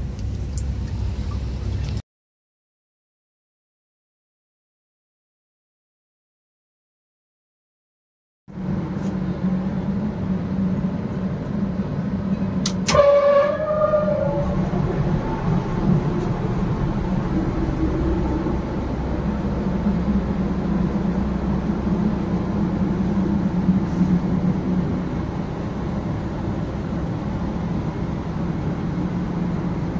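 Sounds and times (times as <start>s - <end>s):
fan humming: 8.6s - 29.9s.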